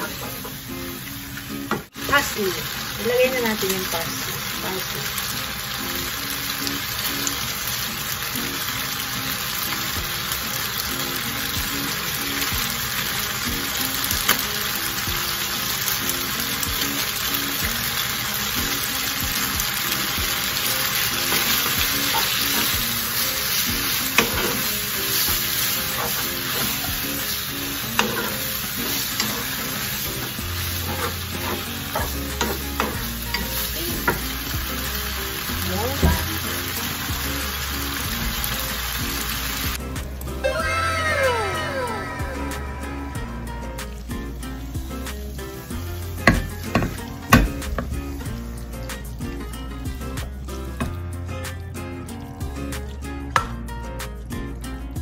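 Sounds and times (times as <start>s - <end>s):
pasta sizzling in a frying pan: 0.0s - 39.9s, 43.2s - 51.1s
wooden spatula scraping a pan: 30.8s - 32.9s.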